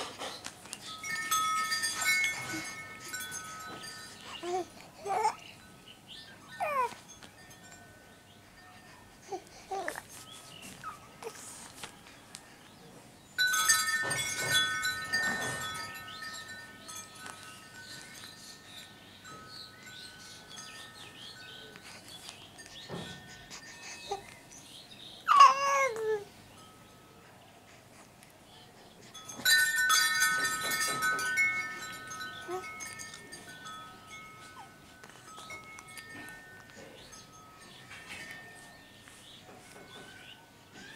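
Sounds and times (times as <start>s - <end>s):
chimes ringing: 0.8s - 9.4s, 13.4s - 24.6s, 29.2s - 40.9s.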